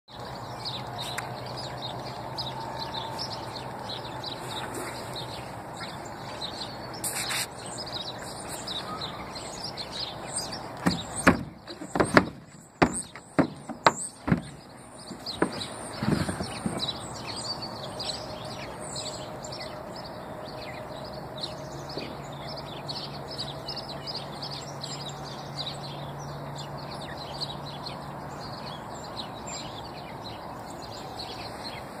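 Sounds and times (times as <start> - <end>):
small birds chirping: 0.1 - 32.0
loud sharp knocks and bumps: 10.8 - 17.0.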